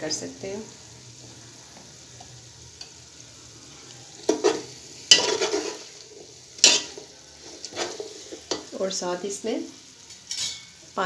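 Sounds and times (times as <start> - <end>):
oil sizzling: 0.0 - 11.0
metal spoon scraping a pot: 4.3 - 8.7.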